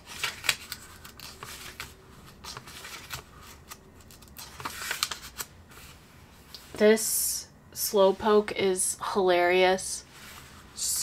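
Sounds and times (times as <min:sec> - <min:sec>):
paper pages turning: 0:00.0 - 0:06.0.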